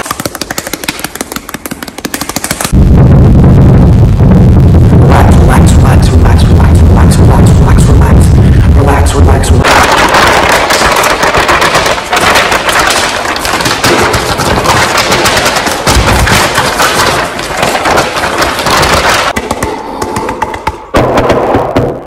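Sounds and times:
paper crinkling and rustling: 0:09.7 - 0:19.4.

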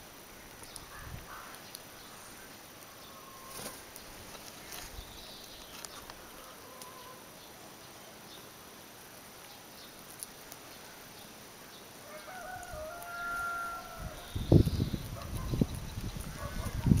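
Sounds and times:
faint outdoor ambience: 0:00.0 - 0:17.0
hens calling softly: 0:12.1 - 0:14.6.

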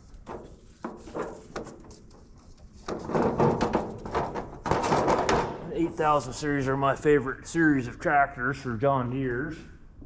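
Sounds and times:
panel scraping and rattling: 0:02.8 - 0:05.6.

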